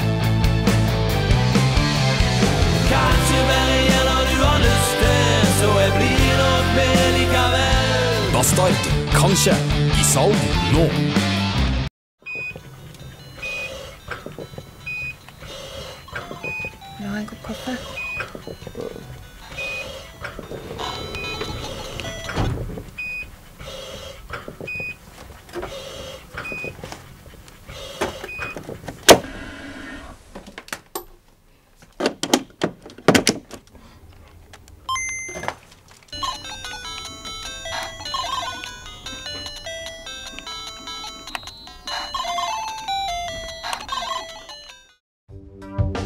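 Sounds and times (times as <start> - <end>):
high electronic beep: 20.6 - 23.2, 34.9 - 35.5.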